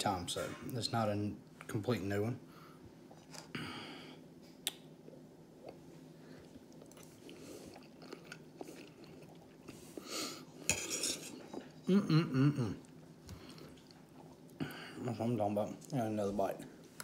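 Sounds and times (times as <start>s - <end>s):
man chewing food: 4.6s - 11.9s, 12.8s - 15.0s
man humming: 11.9s - 12.8s.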